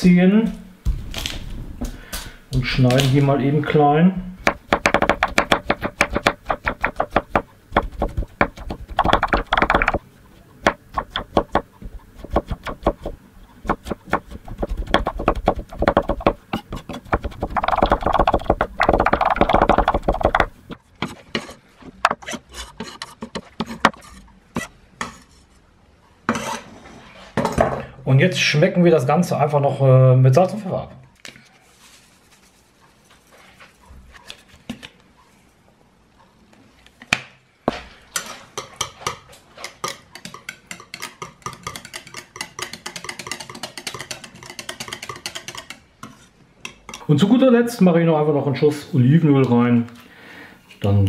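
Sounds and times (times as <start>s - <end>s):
knife chopping on wooden board: 4.4s - 10.0s, 10.6s - 21.2s.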